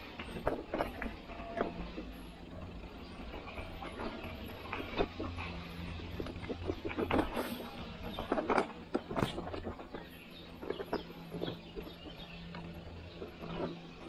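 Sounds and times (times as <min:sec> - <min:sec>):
bike clattering and rattling: 0:00.0 - 0:14.0
low steady hum: 0:00.0 - 0:14.0.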